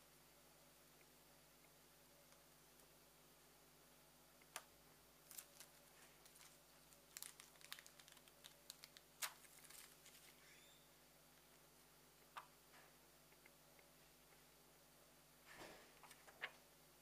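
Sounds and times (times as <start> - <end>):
plastic film crinkling: 5.2 - 10.5.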